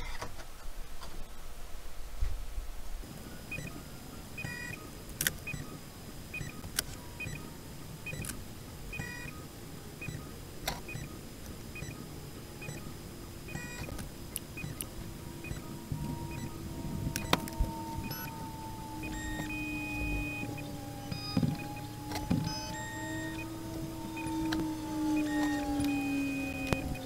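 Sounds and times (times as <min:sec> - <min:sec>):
printer stepper motors whirring: 0:03.4 - 0:27.0
sharp clicks: 0:13.5 - 0:16.5, 0:17.1 - 0:23.5, 0:24.2 - 0:27.0.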